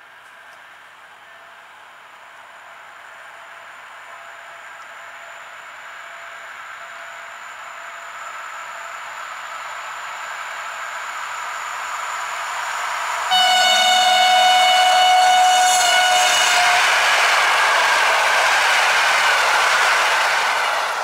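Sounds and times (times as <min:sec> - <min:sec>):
electric train running noise: 0:01.6 - 0:21.0
train horn blast: 0:13.3 - 0:17.7.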